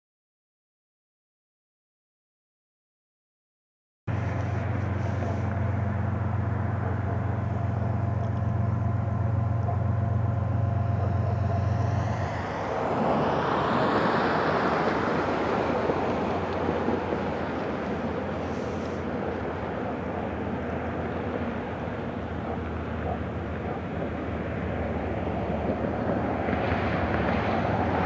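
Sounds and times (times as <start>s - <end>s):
distant diesel locomotives droning: 4.1s - 28.0s
rushing noise of passing object: 10.7s - 22.0s.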